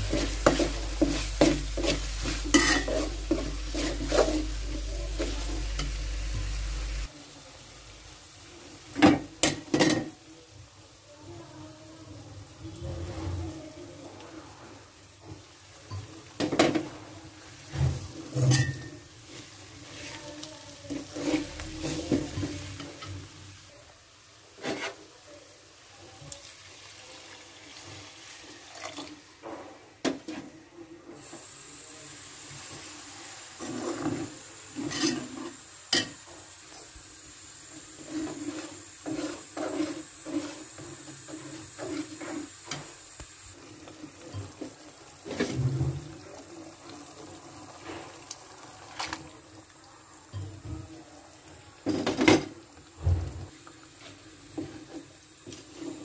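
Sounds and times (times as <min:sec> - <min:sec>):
spoon scraping in metal pot: 0:00.0 - 0:06.0, 0:20.9 - 0:23.0, 0:38.0 - 0:42.8.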